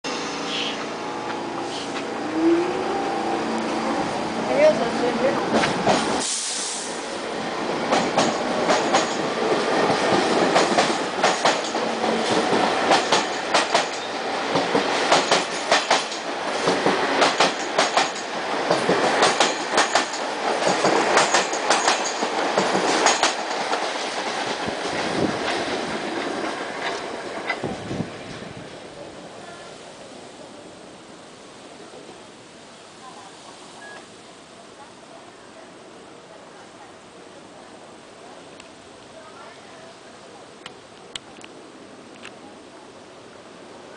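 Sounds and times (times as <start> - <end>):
subway train wheels clattering: 0.1 - 29.6.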